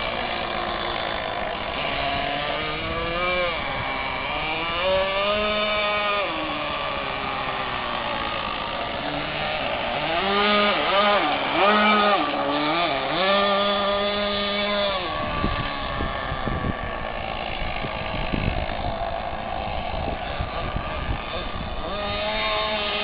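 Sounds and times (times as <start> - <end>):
electric motors whining: 0.0 - 23.0.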